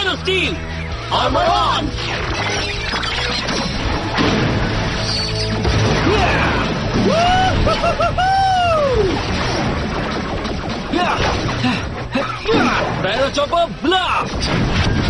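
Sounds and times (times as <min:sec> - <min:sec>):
action background music: 0:00.0 - 0:15.0
swooping arching tones: 0:01.8 - 0:13.0
punches and impact effects: 0:03.4 - 0:07.8, 0:09.1 - 0:13.2, 0:14.2 - 0:15.0.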